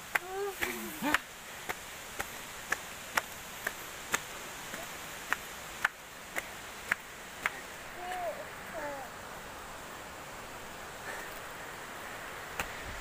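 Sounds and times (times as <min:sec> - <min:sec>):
background hiss: 0:00.0 - 0:13.0
footsteps on stone steps: 0:00.1 - 0:08.2.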